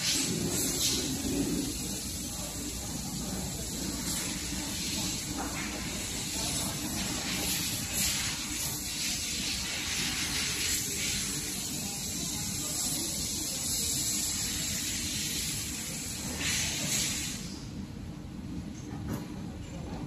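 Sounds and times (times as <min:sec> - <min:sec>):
gas hissing from laser head: 0:06.0 - 0:17.5.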